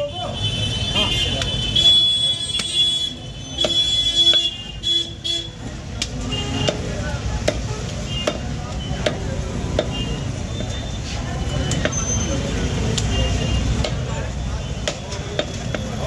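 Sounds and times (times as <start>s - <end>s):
cleaver chopping meat on wood block: 6.0s - 10.0s, 13.7s - 14.1s, 14.8s - 15.8s.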